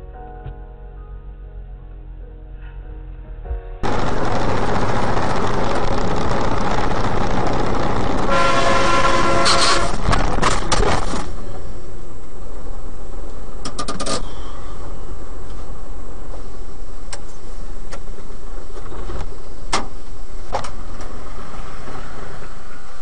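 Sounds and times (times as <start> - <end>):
horn sounding: 3.8 - 10.2
truck engine and road noise: 3.8 - 23.0.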